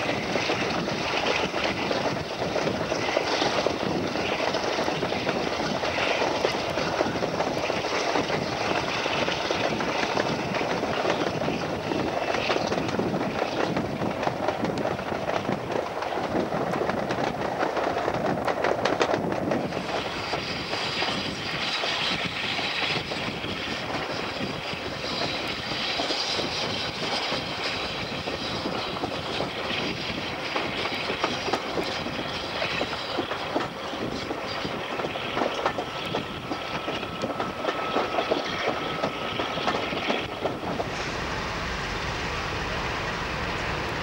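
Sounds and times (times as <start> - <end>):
diesel locomotive approaching: 0.0 - 44.0
train wheels clicking over rail joints: 0.0 - 44.0.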